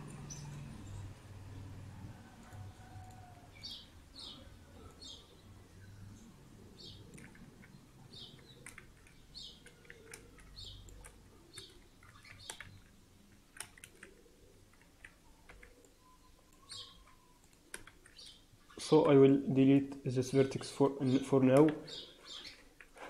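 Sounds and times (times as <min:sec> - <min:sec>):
faint bird chirping: 0:00.1 - 0:19.5, 0:20.1 - 0:23.0
mouse and keyboard clicks: 0:07.0 - 0:18.4.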